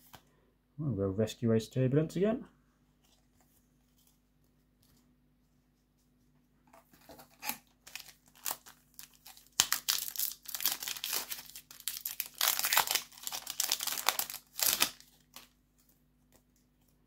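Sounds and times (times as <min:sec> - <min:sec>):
foil pack tearing: 0:07.3 - 0:15.5
foil wrapper crinkling: 0:07.3 - 0:16.5
sharp crack of foil: 0:07.4 - 0:15.5.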